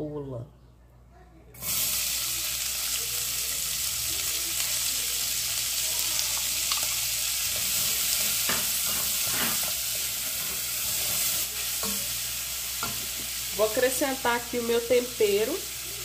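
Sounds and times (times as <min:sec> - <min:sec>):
onion sizzling in fat: 0:01.6 - 0:16.0
spoon stirring: 0:06.7 - 0:12.2.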